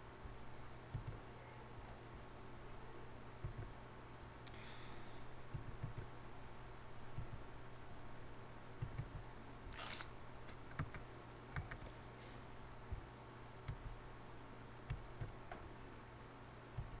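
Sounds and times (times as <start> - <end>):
faint low hum: 0.0 - 17.0
mouse and keyboard clicks: 11.6 - 12.0
short rustling hisses: 12.0 - 12.5.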